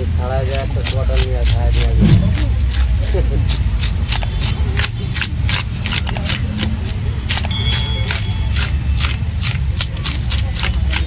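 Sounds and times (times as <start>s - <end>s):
steady low hum: 1.8s - 3.0s
high ringing tone: 7.5s - 8.7s.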